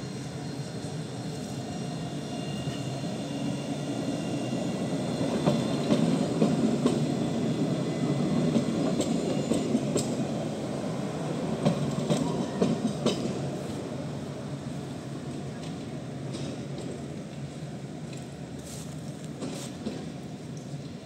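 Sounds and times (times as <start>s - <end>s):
tram rumbling past: 0.0s - 21.0s.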